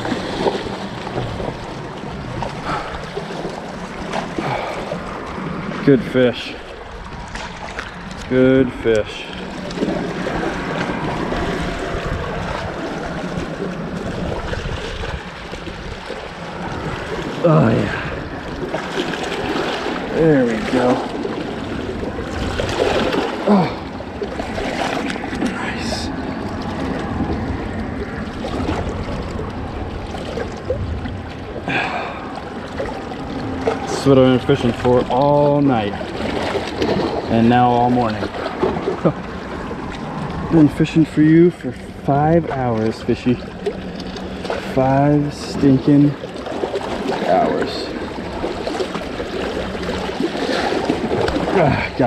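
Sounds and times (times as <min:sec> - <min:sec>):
water sloshing around rocks: 0:00.0 - 0:52.0.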